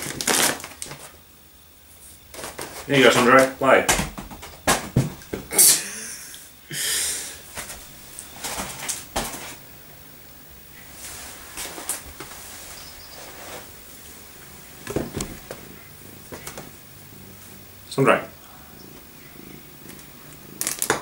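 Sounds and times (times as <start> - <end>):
foil bag crinkling: 0.0 - 1.2, 20.6 - 21.0
thump: 3.9 - 5.2.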